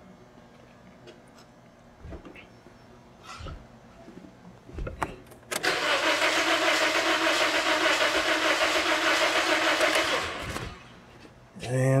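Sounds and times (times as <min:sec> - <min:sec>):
car engine cranking without starting: 0:05.6 - 0:10.8.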